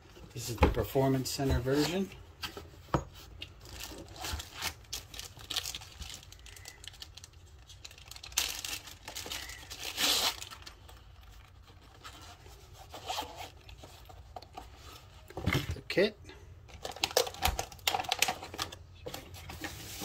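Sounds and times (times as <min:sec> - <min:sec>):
plastic bag crinkling: 0:03.6 - 0:11.6, 0:16.7 - 0:18.9.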